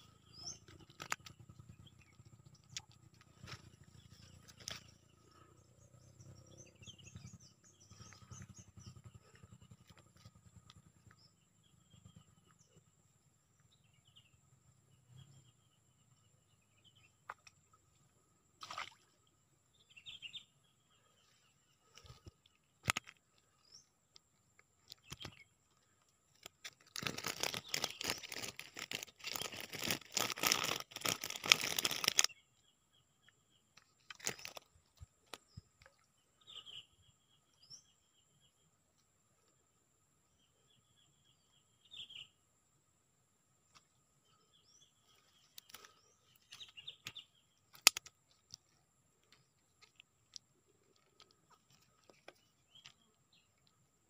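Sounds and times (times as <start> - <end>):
faint birds chirping: 0.0 - 54.0
loud crackling rustle: 26.7 - 32.3.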